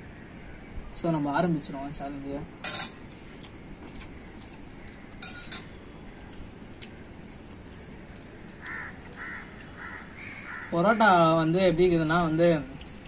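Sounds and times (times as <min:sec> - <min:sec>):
crow cawing: 0:08.6 - 0:11.2.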